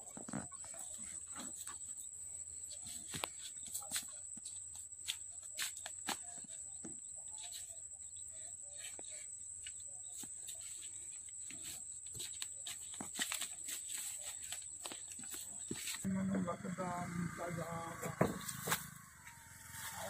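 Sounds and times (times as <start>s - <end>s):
steady high whine: 16.1s - 20.0s.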